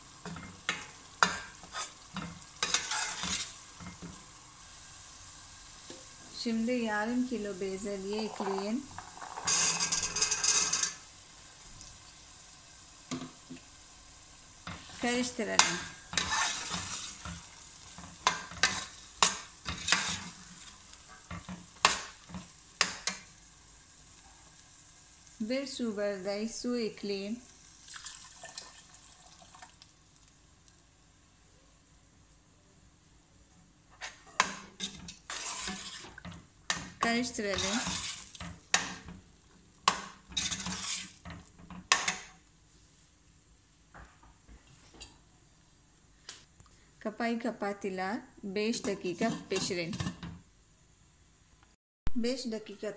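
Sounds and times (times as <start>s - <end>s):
faint sizzle: 0.0s - 52.9s
spoon scraping and knocking pot: 8.1s - 11.0s, 33.9s - 39.2s, 39.8s - 42.3s.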